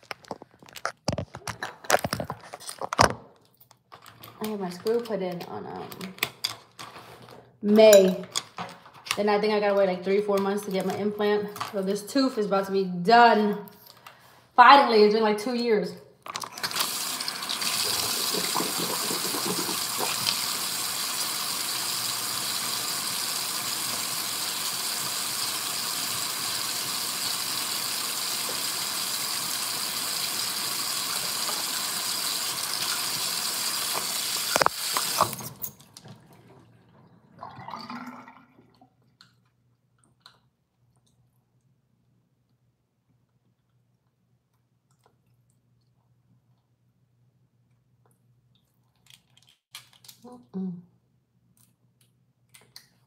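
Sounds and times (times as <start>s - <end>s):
water tap running: 16.6s - 35.6s.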